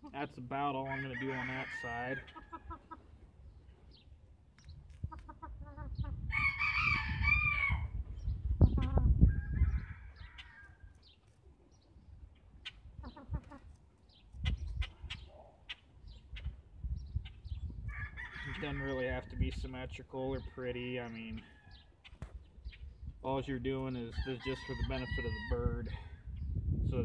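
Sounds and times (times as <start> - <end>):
chickens clucking: 0.0 - 6.3, 7.7 - 9.5, 10.2 - 19.8.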